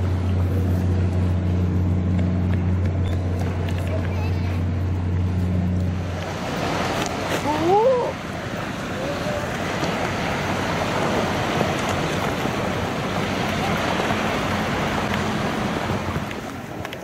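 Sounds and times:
rushing water current: 0.0 - 2.1, 3.2 - 17.0.

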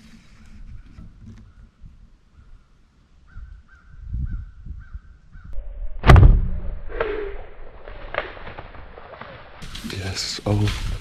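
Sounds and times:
bow shot report: 5.6 - 9.8.

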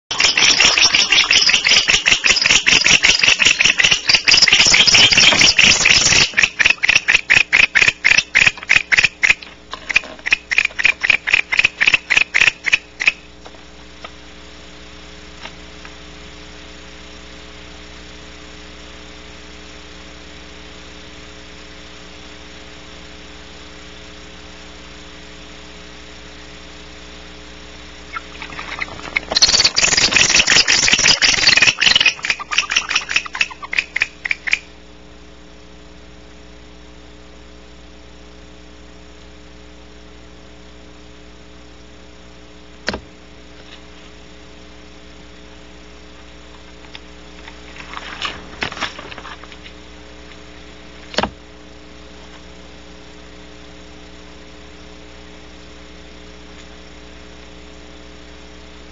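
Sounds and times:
barn owl harsh rasping: 0.1 - 13.3, 28.1 - 34.7.

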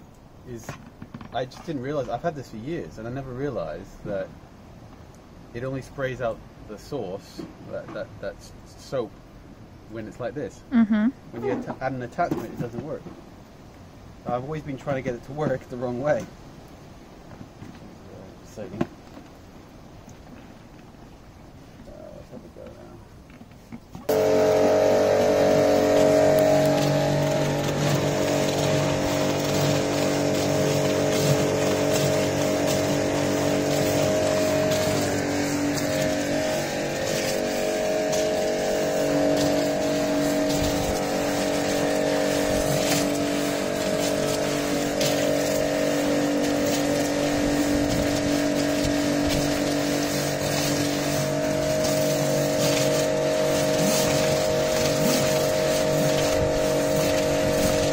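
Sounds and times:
water jets hissing on pavement: 0.0 - 4.3, 5.5 - 9.1, 14.2 - 16.8, 24.1 - 57.9
pressure washer pump hum: 24.0 - 57.9.

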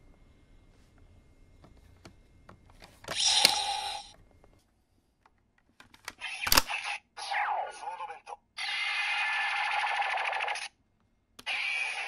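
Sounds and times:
electronic toy sound effect: 3.1 - 4.1, 6.2 - 10.7, 11.4 - 12.0.

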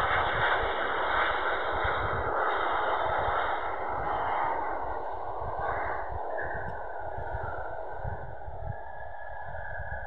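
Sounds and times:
jet airliner engines rushing: 0.0 - 10.0
wind rumbling on microphone: 0.0 - 10.0.

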